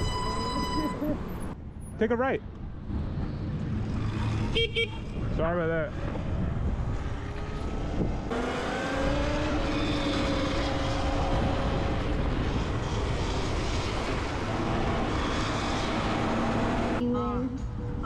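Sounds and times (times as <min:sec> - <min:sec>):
road noise: 0:00.0 - 0:18.0
wind on microphone: 0:05.0 - 0:16.1.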